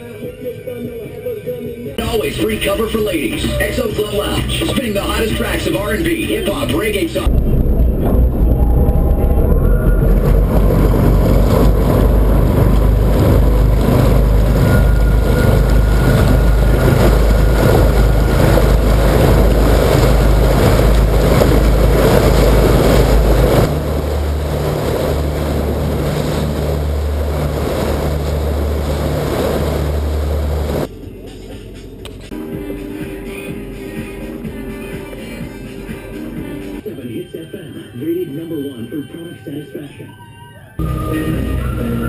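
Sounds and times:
rushing wake water: 2.0s - 31.0s
boat engine drone: 2.0s - 37.2s, 40.6s - 42.0s
wind buffeting microphone: 7.3s - 30.9s.

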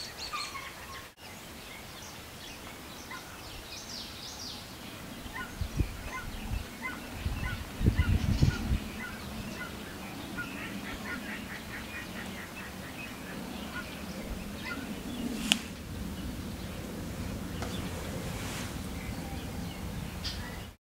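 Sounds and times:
wetland birds chirping: 0.0s - 20.8s
sharp click: 15.4s - 15.7s.

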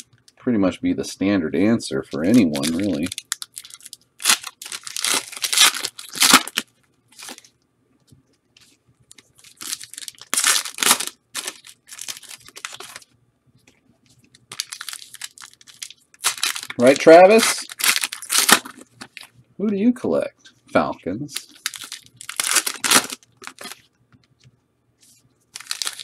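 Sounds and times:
foil wrappers tearing and crinkling: 2.1s - 6.6s, 7.2s - 7.4s, 9.4s - 13.0s, 14.5s - 19.2s, 21.4s - 23.8s, 25.6s - 26.0s.

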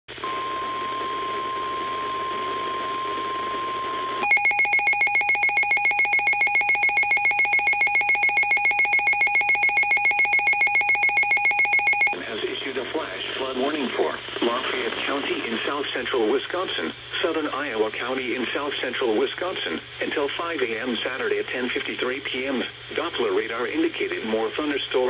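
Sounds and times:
pulsing multi-tone warning alarm: 4.2s - 12.2s
steady alarm tone: 4.2s - 12.2s
broadcast hiss: 12.0s - 25.0s.

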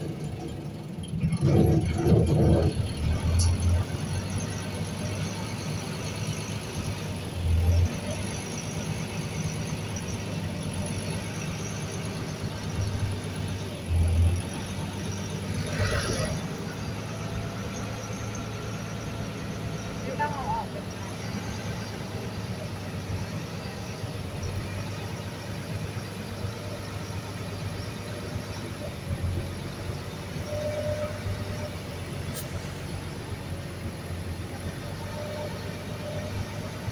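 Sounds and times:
ferry engine drone: 0.0s - 36.9s.

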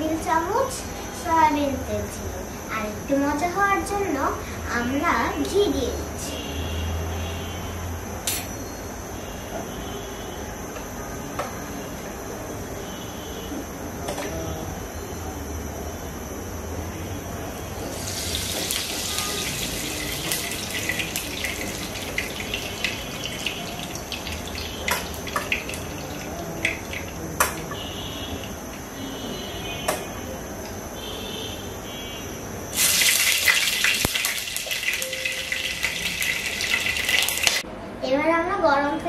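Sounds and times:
oil sizzling in a pan: 17.8s - 27.5s, 32.7s - 37.6s.

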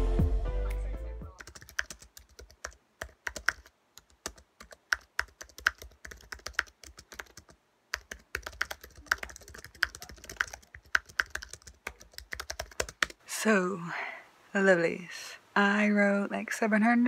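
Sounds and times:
fast typing on computer keyboard: 1.3s - 13.2s.

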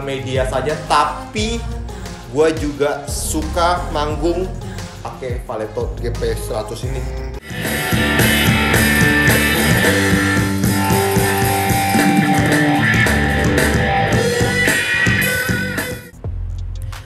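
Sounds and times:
bass guitar: 0.0s - 17.0s
drums: 0.0s - 17.0s
electric guitar: 7.4s - 16.1s.

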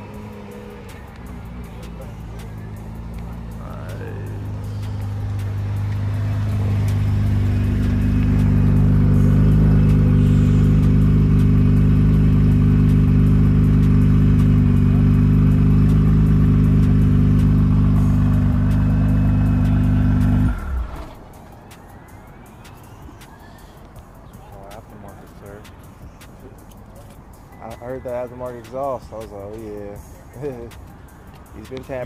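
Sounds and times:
car engine running loud: 0.0s - 21.2s.

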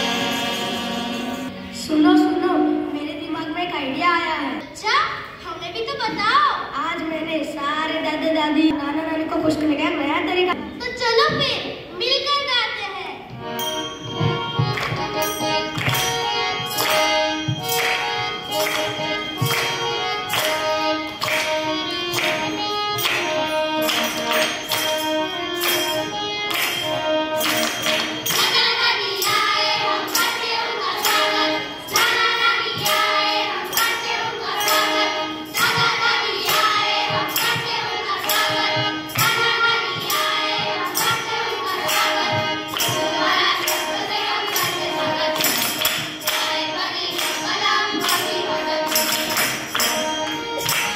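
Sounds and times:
steady percussion beat: 0.0s - 1.6s, 13.4s - 50.9s
musical accompaniment: 0.0s - 3.2s, 13.2s - 50.9s
children singing together: 14.2s - 50.9s.

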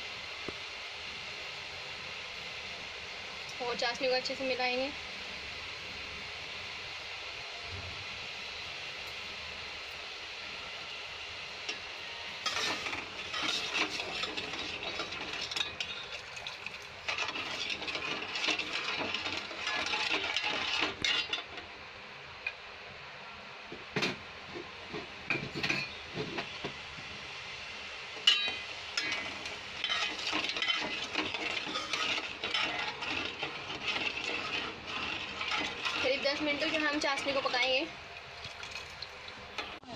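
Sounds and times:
steady hiss: 0.0s - 39.9s
spoon scraping metal pot: 12.5s - 21.5s, 28.3s - 37.8s.

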